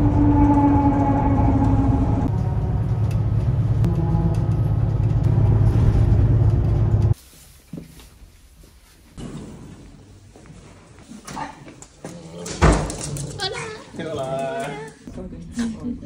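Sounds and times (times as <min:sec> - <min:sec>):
bus engine rumbling: 0:00.0 - 0:07.2.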